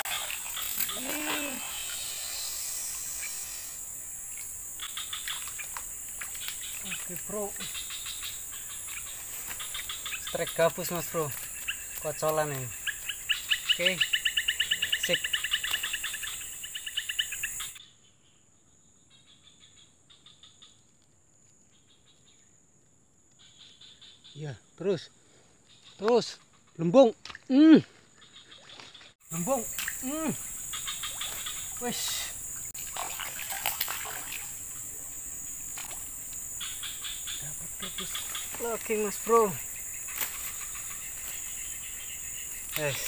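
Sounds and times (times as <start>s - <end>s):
fish splashing and thrashing: 0.0s - 1.8s, 28.5s - 36.4s
insect chirping: 0.0s - 43.0s.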